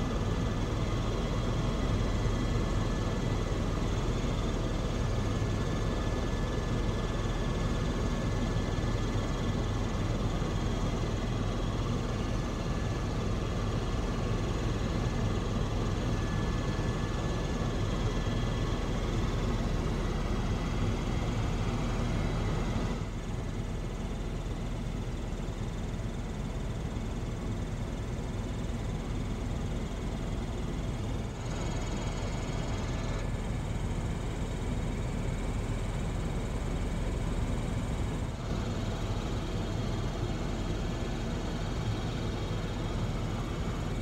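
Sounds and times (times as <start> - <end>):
helicopter engine and rotor drone: 0.0 - 44.0.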